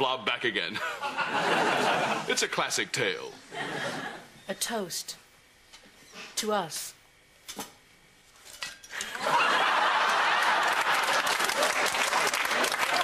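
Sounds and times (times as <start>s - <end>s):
audience laughing: 0.8s - 2.4s, 3.5s - 4.3s, 9.0s - 13.0s
audience clapping: 9.2s - 13.0s.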